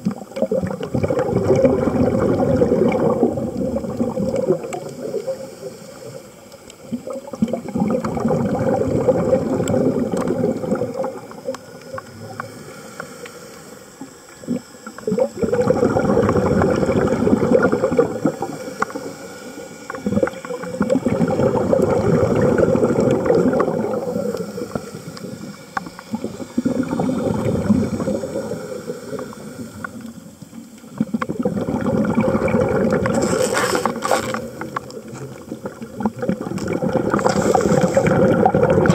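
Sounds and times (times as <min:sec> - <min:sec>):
bubbling exhaled air underwater: 0:00.0 - 0:38.9
diver inhaling: 0:37.1 - 0:38.2.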